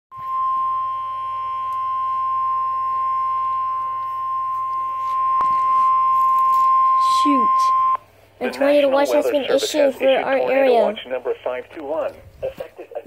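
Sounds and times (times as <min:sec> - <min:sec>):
weather alert radio alarm beep: 0:00.1 - 0:08.0.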